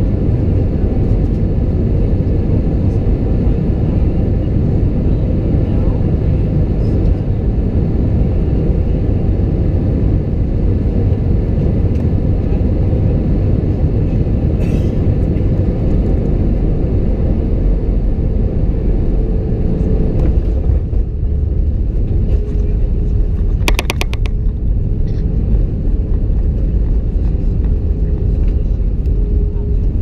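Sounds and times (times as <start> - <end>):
aircraft engines rumbling: 0.0 - 30.0
brief click: 23.7 - 24.3.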